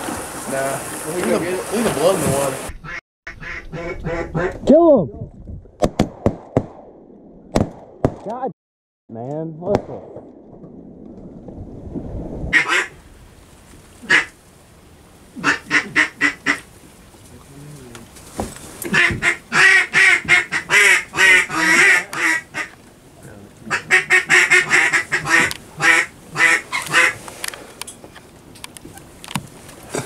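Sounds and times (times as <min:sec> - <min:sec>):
duck call quacks: 0:02.8 - 0:04.6, 0:12.6 - 0:12.9, 0:14.0 - 0:14.3, 0:15.4 - 0:16.6, 0:18.9 - 0:22.7, 0:23.7 - 0:27.2.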